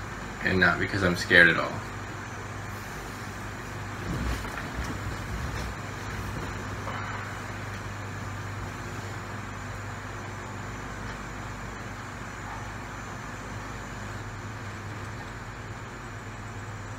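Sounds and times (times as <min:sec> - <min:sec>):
low room hum: 0:00.0 - 0:16.9
bedding and clothes rustling: 0:02.7 - 0:09.4.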